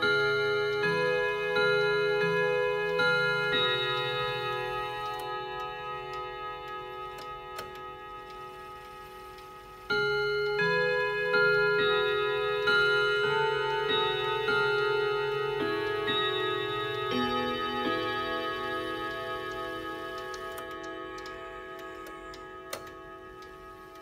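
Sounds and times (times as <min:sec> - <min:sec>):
clock gongs chiming a tune: 0:00.0 - 0:24.0
faint clock ticking: 0:00.0 - 0:24.0.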